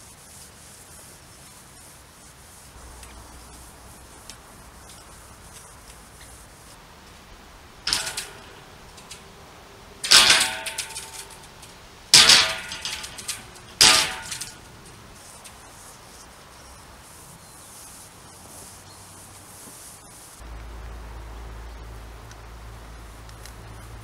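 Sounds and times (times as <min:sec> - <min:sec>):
steel pipes clanging: 0:07.0 - 0:15.8.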